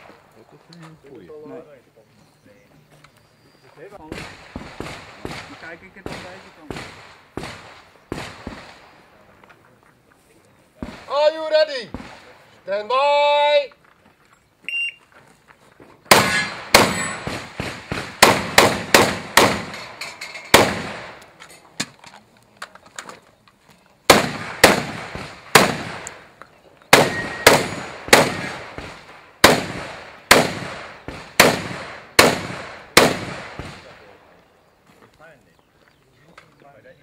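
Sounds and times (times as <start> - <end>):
shotgun shots: 4.0 - 9.0, 10.8 - 12.4, 16.1 - 21.2, 24.1 - 26.3, 26.9 - 34.2.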